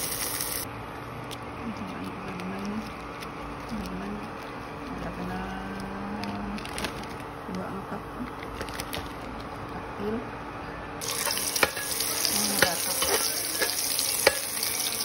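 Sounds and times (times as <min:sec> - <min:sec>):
hotdogs sizzling in oil: 0:00.0 - 0:00.7, 0:11.0 - 0:15.0.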